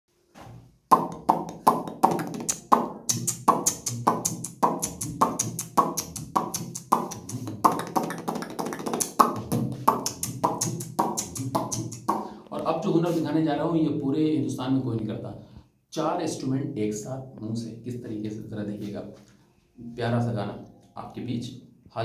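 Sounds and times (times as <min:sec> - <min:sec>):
beatboxing drum beat: 0:00.9 - 0:13.2.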